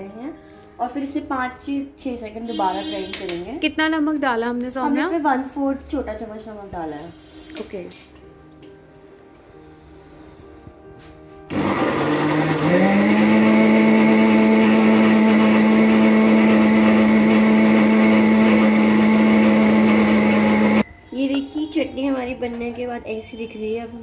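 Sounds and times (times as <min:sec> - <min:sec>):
mixer grinder motor whining: 0:11.5 - 0:20.8.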